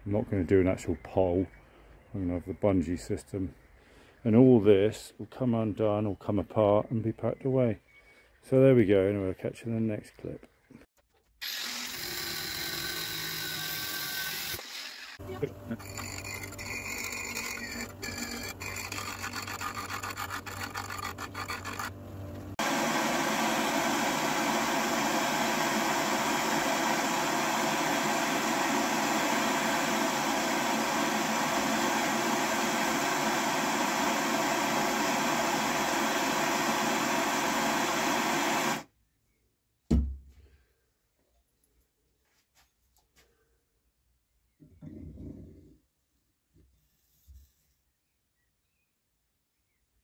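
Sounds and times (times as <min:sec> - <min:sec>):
bench grinder grinding steel rod: 0:11.4 - 0:38.8
blowtorch hissing: 0:22.6 - 0:38.8
knock: 0:39.9 - 0:40.2.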